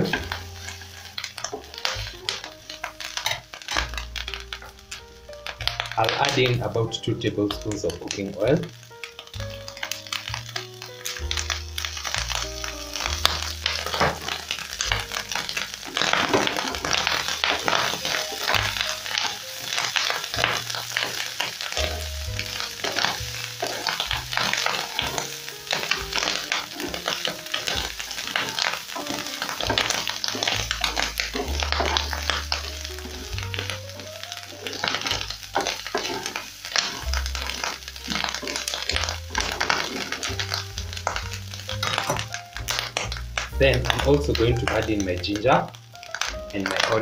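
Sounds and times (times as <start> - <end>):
tripe sizzling in frying pan: 0.0 - 47.0
spatula scraping pan: 11.1 - 43.2.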